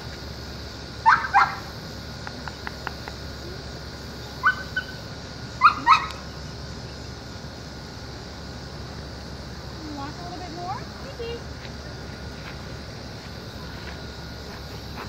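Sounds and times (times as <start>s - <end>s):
dog yipping: 1.0s - 1.6s, 4.4s - 5.0s, 5.6s - 6.2s.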